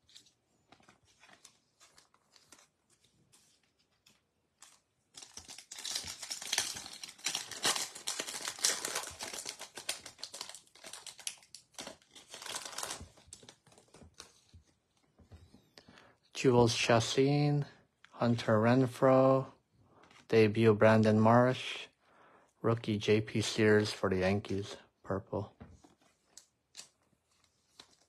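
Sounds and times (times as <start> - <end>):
foil wrapper crackling: 4.6 - 13.9.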